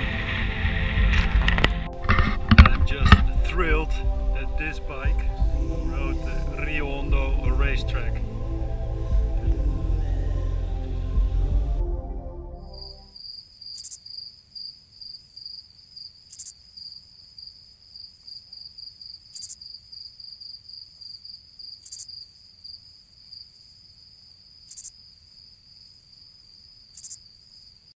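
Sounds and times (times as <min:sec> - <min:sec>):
sharp high insect buzz: 0:12.7 - 0:23.8, 0:24.4 - 0:27.7
cricket trilling: 0:12.8 - 0:27.9.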